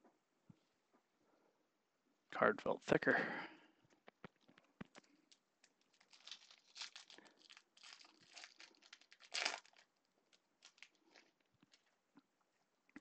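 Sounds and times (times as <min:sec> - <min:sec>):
foil wrapper tearing and crinkling: 0:05.0 - 0:11.9.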